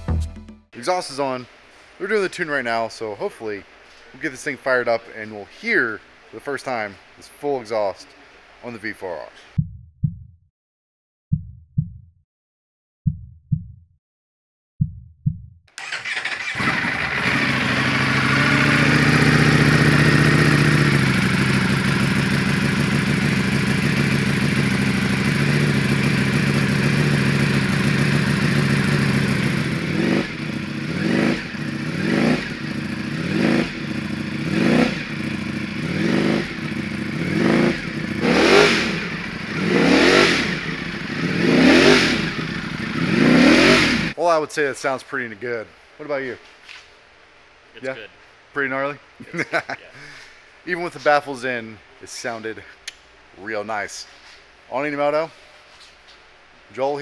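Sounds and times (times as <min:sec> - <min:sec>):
motorcycle engine starting and revving: 0:15.7 - 0:44.2.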